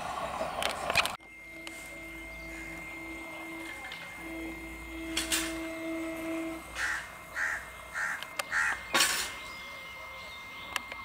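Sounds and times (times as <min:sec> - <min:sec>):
steady low tone: 0:00.0 - 0:11.0
crow cawing: 0:06.8 - 0:08.9.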